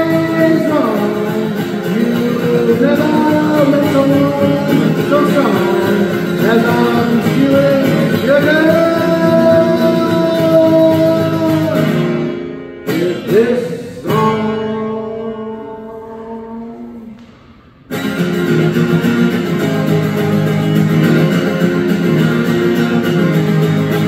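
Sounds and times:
man singing: 0.0s - 17.4s
strummed acoustic guitar: 0.0s - 24.0s.

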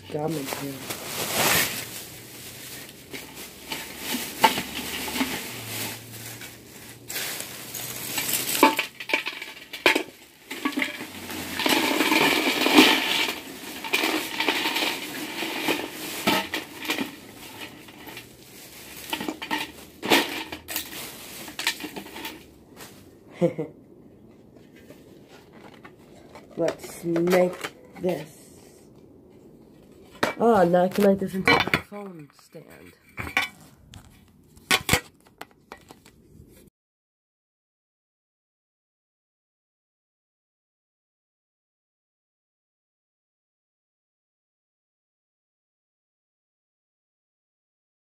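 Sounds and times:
scraping and rattling: 0.0s - 23.1s, 29.4s - 36.2s.

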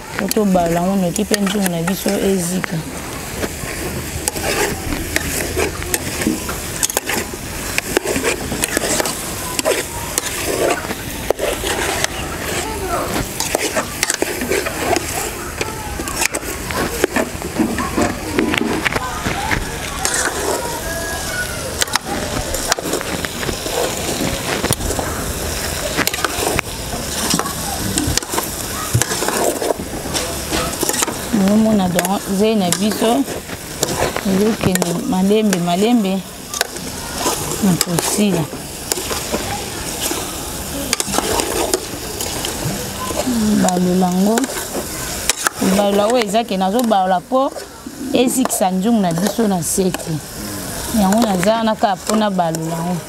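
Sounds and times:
steady sizzle: 0.0s - 53.0s
spoon stirring stew: 0.1s - 19.0s, 19.7s - 20.8s, 21.7s - 53.0s
metal spoon scraping pot: 3.4s - 15.4s, 20.0s - 20.7s.

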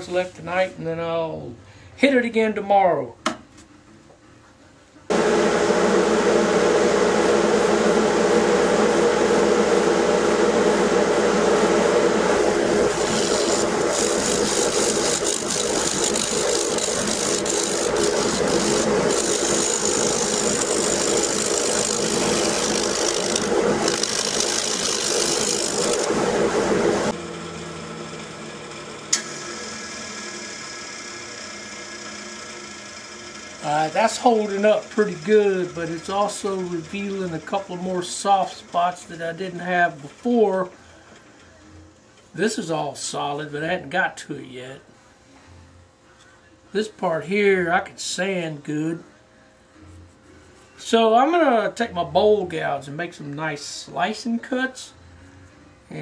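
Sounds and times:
wood lathe motor hum: 5.1s - 40.0s
scraper rasping on wood: 12.9s - 26.1s.

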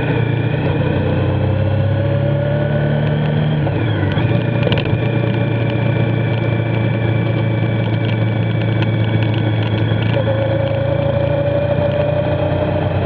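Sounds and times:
motorcycle engine running: 0.0s - 13.0s
wind: 0.0s - 13.0s
wet tyre noise: 2.8s - 13.0s.

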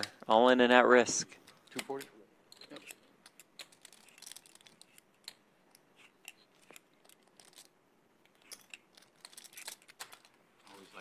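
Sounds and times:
poker chips clicking: 1.4s - 11.0s.

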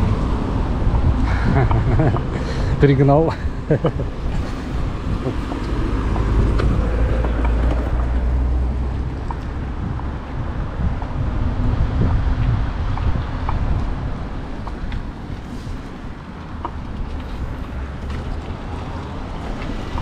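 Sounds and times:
tyre noise on asphalt: 0.0s - 20.0s
wind rumbling on microphone: 0.0s - 20.0s.

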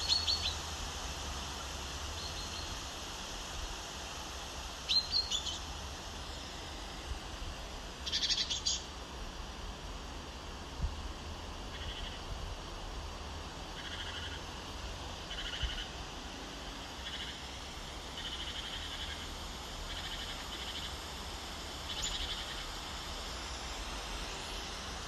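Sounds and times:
frog croaking: 11.7s - 12.2s, 13.8s - 14.4s, 15.3s - 16.0s, 17.0s - 17.4s, 18.2s - 19.3s.

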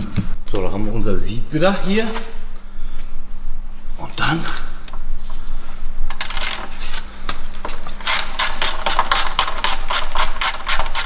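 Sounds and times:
hand ratchet clicking: 6.1s - 6.7s, 8.0s - 11.0s.

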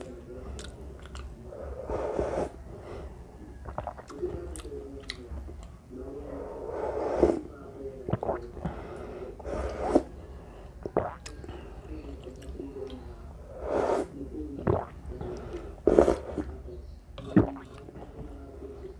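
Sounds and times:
chewing noodles: 0.0s - 2.0s, 3.5s - 5.8s, 10.8s - 13.1s, 17.2s - 18.9s
slurping broth from a spoon: 0.4s - 2.6s, 6.2s - 7.5s, 8.1s - 11.3s, 13.5s - 16.6s, 17.2s - 18.9s.

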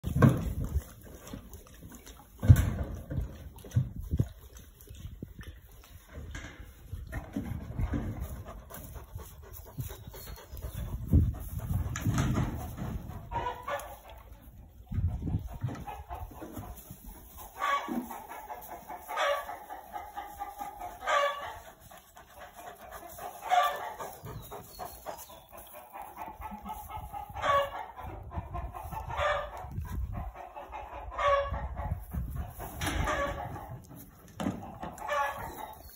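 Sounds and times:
barnyard fowl calling: 12.0s - 14.5s, 15.3s - 35.9s.

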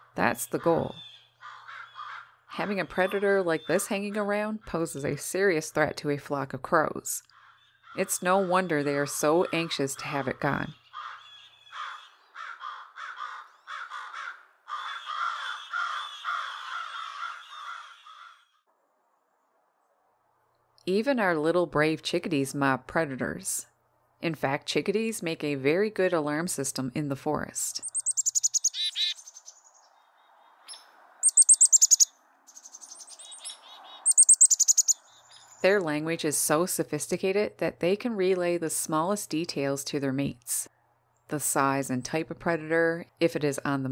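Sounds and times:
chickadee alarm calls: 0.3s - 4.0s, 7.4s - 18.4s, 27.8s - 29.9s, 30.7s - 35.6s
crows cawing harshly: 1.0s - 2.5s, 7.3s - 8.0s, 10.8s - 18.6s.

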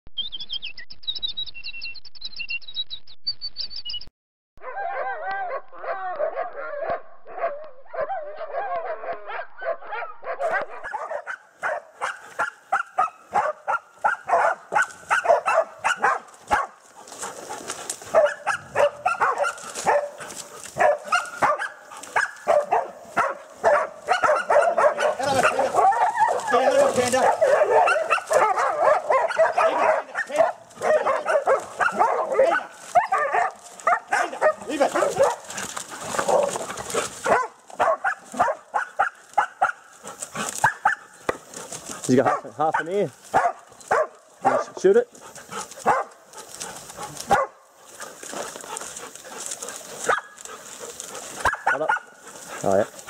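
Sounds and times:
high chirping intro sound: 0.2s - 4.1s
dogs barking and yelping: 4.6s - 53.0s.

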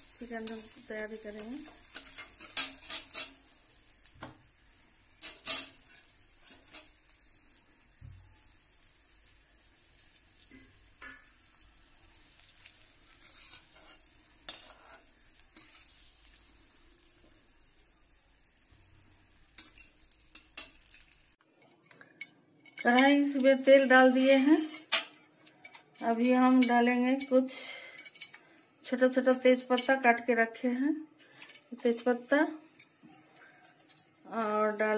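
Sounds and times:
oil sizzling: 0.0s - 34.9s
metal spoon scraping a pan: 0.1s - 3.9s, 5.0s - 7.2s, 10.4s - 16.6s, 19.0s - 28.7s, 29.3s - 30.2s, 31.2s - 34.8s.

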